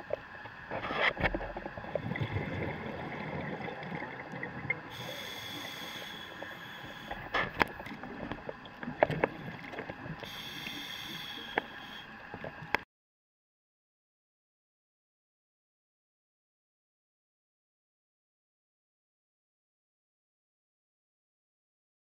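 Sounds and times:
regulator hissing: 4.4s - 7.3s, 10.2s - 12.2s.

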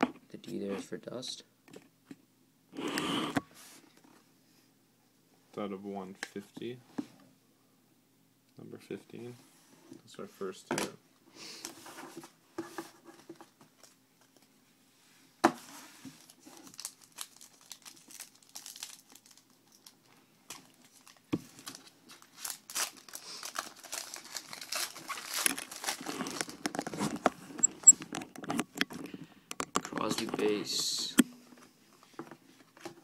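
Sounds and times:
foil wrapper crinkling and tearing: 16.2s - 27.2s.

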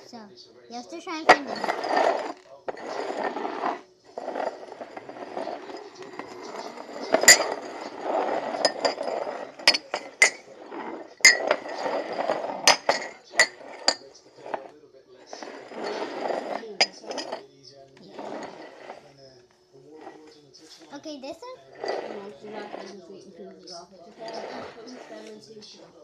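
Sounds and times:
ceramic mugs clinking: 1.1s - 19.1s, 21.6s - 23.0s, 24.0s - 25.5s
mugs knocking on wooden floor: 4.4s - 14.0s.

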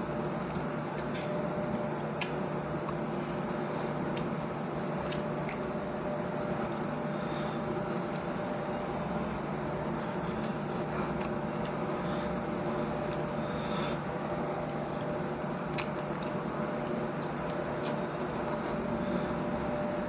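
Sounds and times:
steady mechanical hum: 0.0s - 20.0s
chewing: 2.1s - 3.0s, 5.0s - 5.9s, 10.1s - 14.0s, 15.0s - 16.4s, 17.1s - 18.1s.

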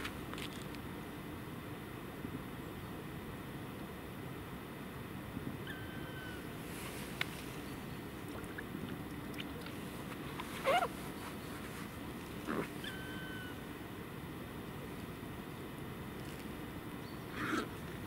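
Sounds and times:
background hiss: 0.0s - 18.0s.

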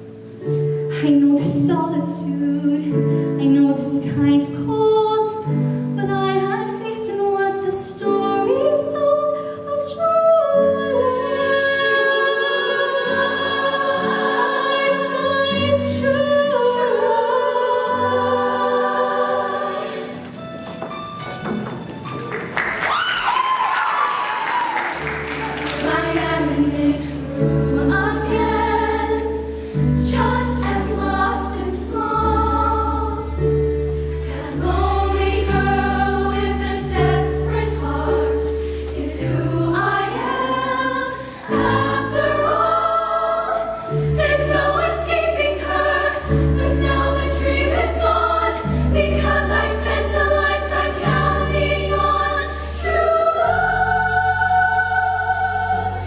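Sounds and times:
women's choir singing: 1.3s - 20.5s, 24.1s - 56.0s
instrumental accompaniment: 1.7s - 23.0s.

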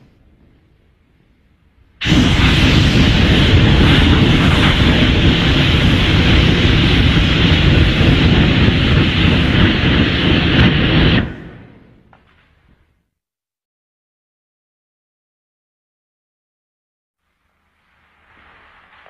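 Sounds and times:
monster rushing blast: 2.0s - 11.8s.

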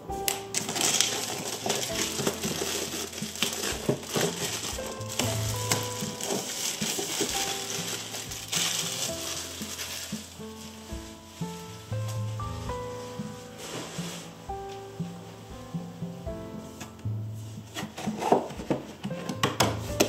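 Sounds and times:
soft background music: 0.0s - 20.0s
cardboard packaging rustling: 0.3s - 14.4s.

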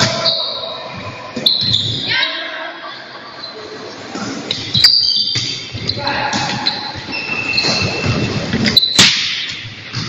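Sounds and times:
high squeaks: 4.5s - 9.2s.

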